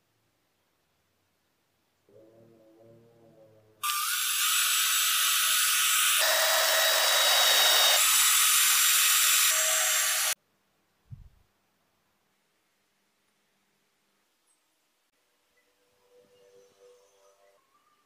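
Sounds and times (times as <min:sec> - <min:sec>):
cordless drill boring into wood: 0:03.8 - 0:10.4
low thump: 0:11.1 - 0:11.4.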